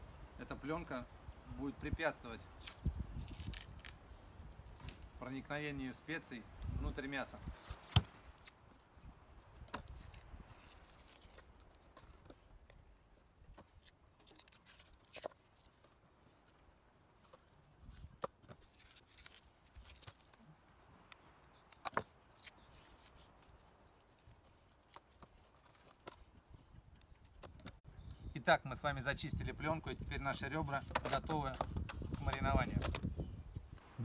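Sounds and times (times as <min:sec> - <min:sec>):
membrane soft tearing: 0:02.4 - 0:05.1, 0:09.6 - 0:12.2, 0:13.6 - 0:16.6, 0:17.6 - 0:20.4, 0:21.5 - 0:26.2.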